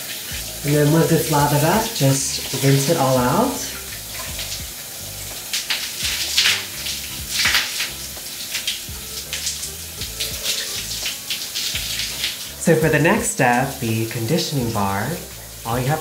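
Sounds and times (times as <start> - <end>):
shower water running and splashing: 0.0 - 16.0.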